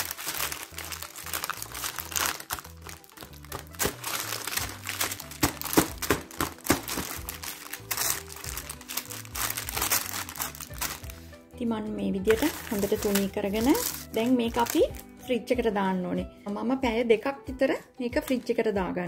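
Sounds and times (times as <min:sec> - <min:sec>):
baking paper crinkling: 0:00.0 - 0:11.3, 0:12.2 - 0:15.1
background music with low notes: 0:00.0 - 0:19.0.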